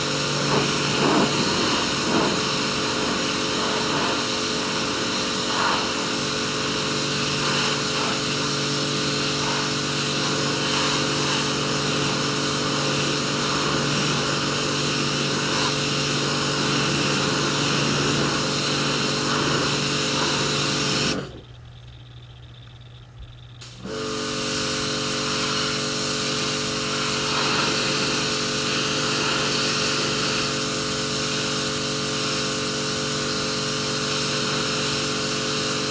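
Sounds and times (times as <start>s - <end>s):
pressure washer running: 0.0s - 21.5s, 23.6s - 35.9s
faint low hum: 21.2s - 23.8s.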